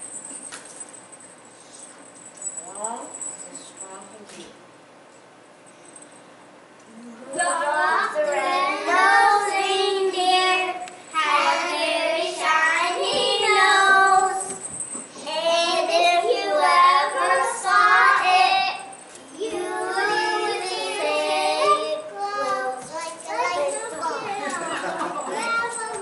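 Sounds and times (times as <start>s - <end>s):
young children singing: 7.4s - 14.6s, 15.2s - 26.0s.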